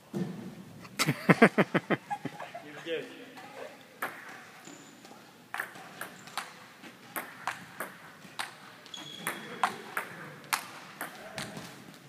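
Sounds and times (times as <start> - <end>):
ping-pong ball hitting paddles and table: 4.0 - 4.4, 5.5 - 11.7
brief high squeak: 8.9 - 9.5.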